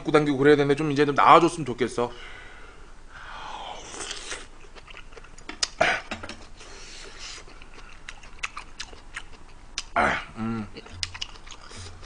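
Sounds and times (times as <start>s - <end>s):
loud breathy noise: 2.1s - 4.0s.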